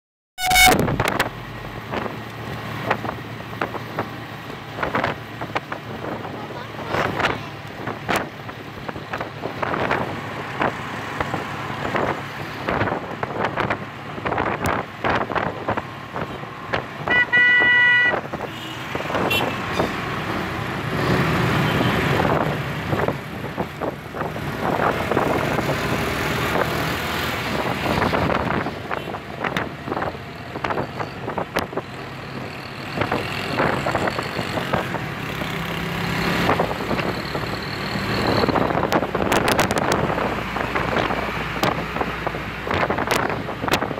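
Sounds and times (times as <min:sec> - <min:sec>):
vehicle horn: 0:00.4 - 0:01.2, 0:17.0 - 0:20.0
motorcycles passing: 0:16.0 - 0:43.9.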